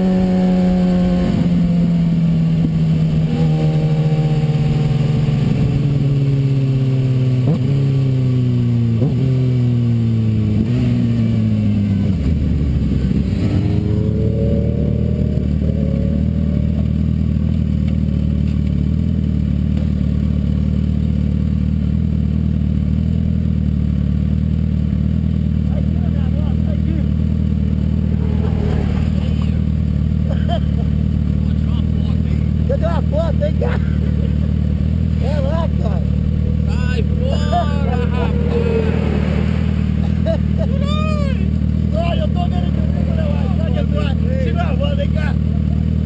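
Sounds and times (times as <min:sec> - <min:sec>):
motorcycle engine slowing: 0:00.0 - 0:46.0
brief engine revs: 0:27.7 - 0:30.1.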